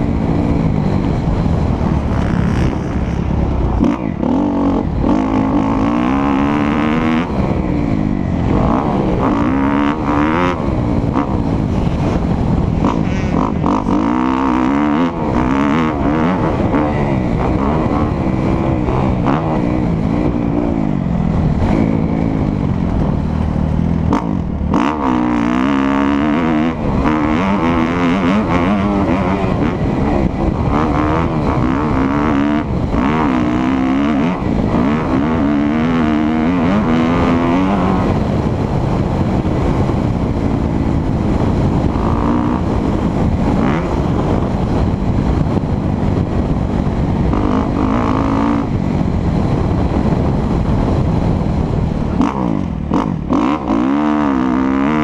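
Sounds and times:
motorcycle engine revving: 0.0 - 55.0.

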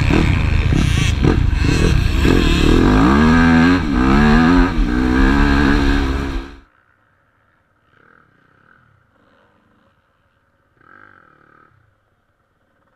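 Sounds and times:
motocross bike engine revving: 0.0 - 6.6.

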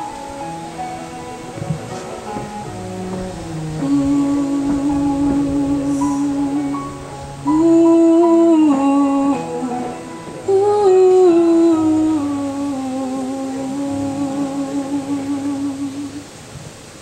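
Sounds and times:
backing track: 0.0 - 17.0
woman singing into a microphone: 3.5 - 16.3.

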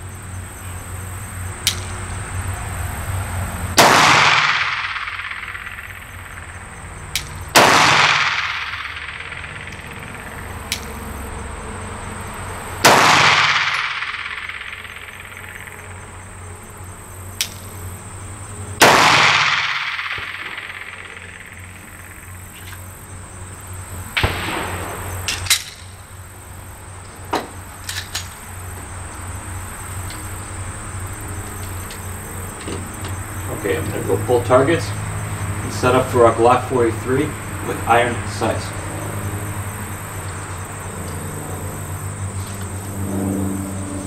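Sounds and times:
pistol shots: 3.7 - 11.1, 12.8 - 16.0, 18.8 - 22.6, 24.2 - 26.1
sharp clicks and knocks: 4.4 - 11.1.

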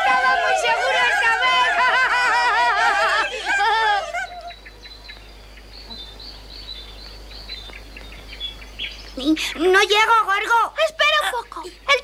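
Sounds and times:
small birds chirping: 3.2 - 12.0.

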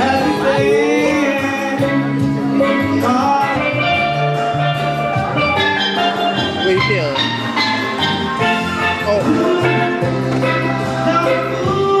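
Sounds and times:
person singing: 0.0 - 5.1, 8.9 - 12.0
instrumental music: 0.0 - 12.0.

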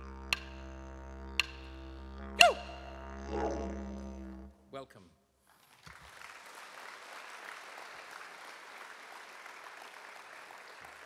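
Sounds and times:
audience applauding: 5.6 - 11.0.

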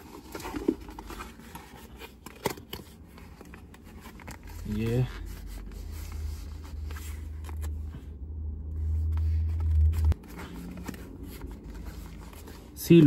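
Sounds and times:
cardboard rustling and clicking: 0.0 - 5.0
low rumble: 5.3 - 12.3.

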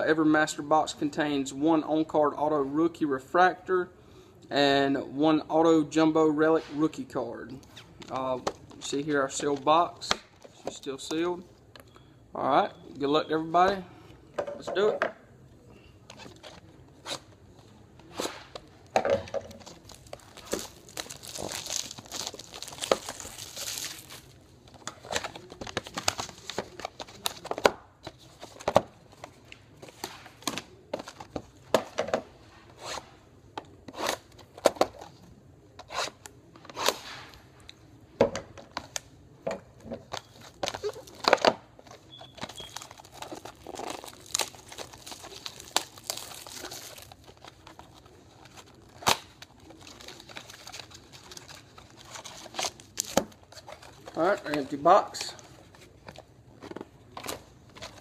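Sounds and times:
plastic wrap crinkling and tearing: 19.6 - 27.6, 40.1 - 55.2.

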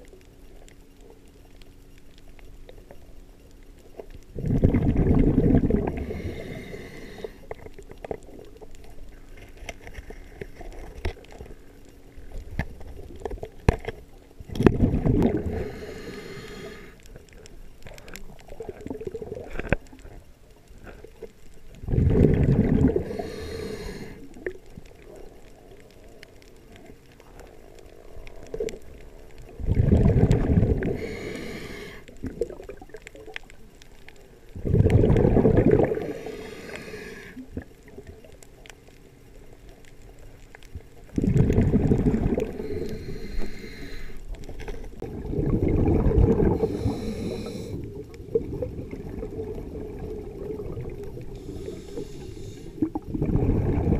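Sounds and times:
breath bubbling underwater: 4.4 - 7.3, 14.5 - 16.2, 21.8 - 24.2, 29.5 - 33.3, 34.6 - 38.1, 41.1 - 44.0, 45.0 - 53.9.

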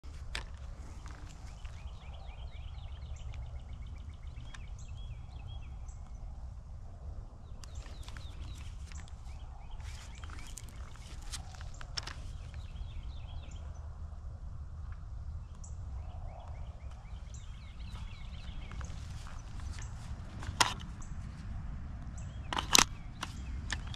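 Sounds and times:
rifle handling clicks and rustles: 0.0 - 2.1, 7.6 - 12.8, 17.5 - 23.9
birds chirping: 0.0 - 14.0, 15.1 - 23.9.

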